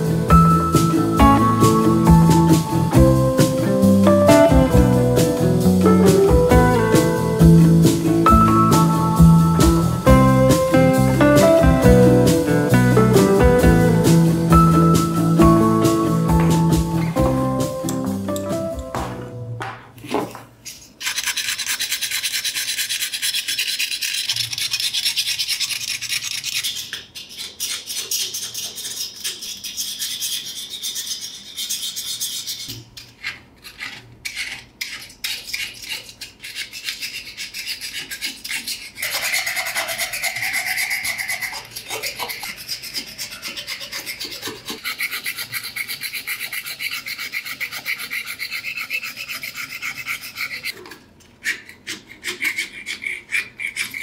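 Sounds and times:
metal scraper rasping rust: 21.0s - 54.0s.

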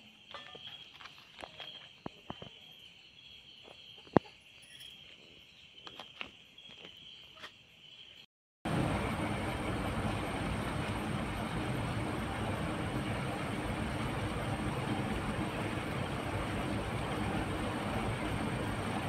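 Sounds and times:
crickets trilling: 0.0s - 8.3s
loud steady rushing noise: 8.7s - 19.0s.

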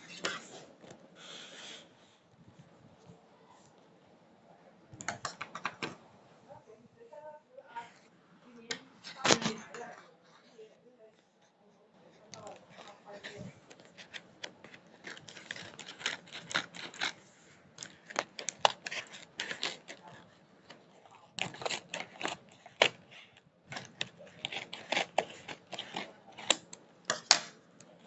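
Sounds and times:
packaging crinkling and rustling: 12.3s - 28.0s.

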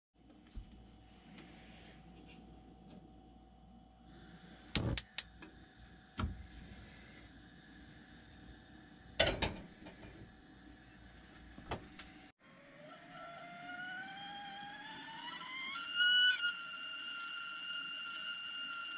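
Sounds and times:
gas hissing: 4.1s - 12.3s
igniter clicks: 4.7s - 5.5s.

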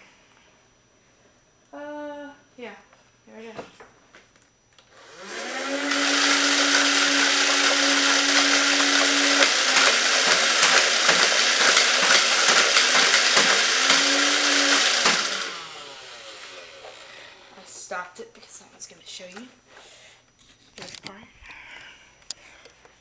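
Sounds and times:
toy gun motor whining: 5.0s - 17.2s
rapid clicking of dart mechanism: 9.7s - 14.1s.

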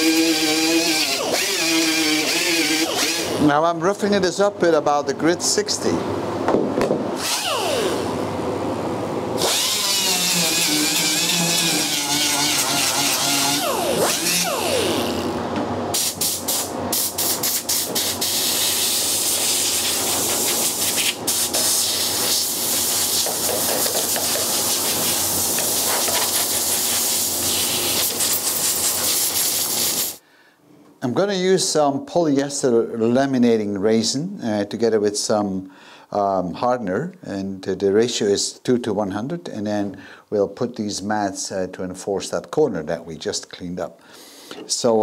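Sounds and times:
rotary sander whining: 0.0s - 3.4s, 7.2s - 8.2s, 9.4s - 15.4s.

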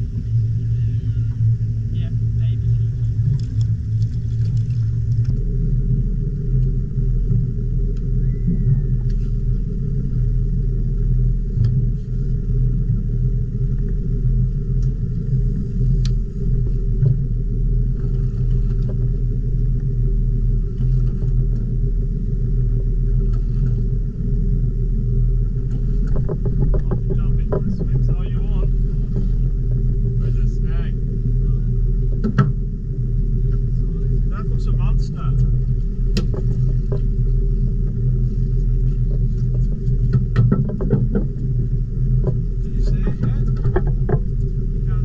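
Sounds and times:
boat engine idling: 0.0s - 45.0s.

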